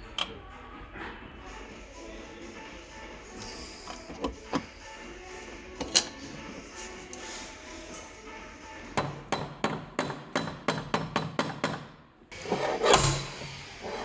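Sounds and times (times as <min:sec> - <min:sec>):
hammer tapping steel: 0:09.0 - 0:11.9.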